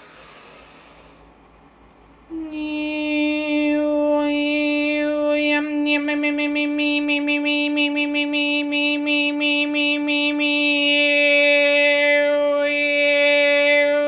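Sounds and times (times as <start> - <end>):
breathy whoosh: 0.0 - 1.3
woman singing wordless chant: 2.3 - 14.0.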